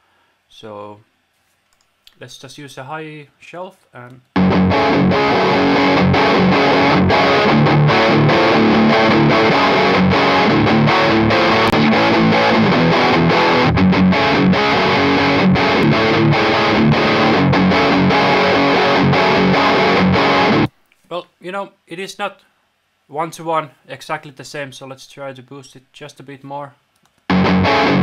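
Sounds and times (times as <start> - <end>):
distorted electric guitar riff: 4.4 - 20.7, 27.3 - 28.0.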